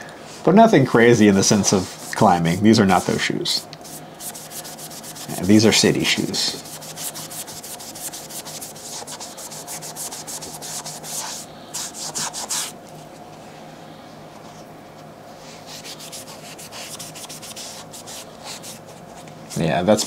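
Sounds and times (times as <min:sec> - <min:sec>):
brush scrubbing fabric: 0:03.8 - 0:12.8, 0:15.5 - 0:19.8.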